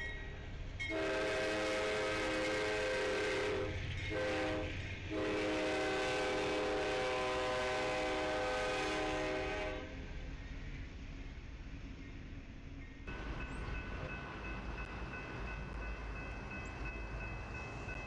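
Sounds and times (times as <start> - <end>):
freight train rumbling past: 0.0 - 18.0
locomotive air horn: 0.9 - 9.9.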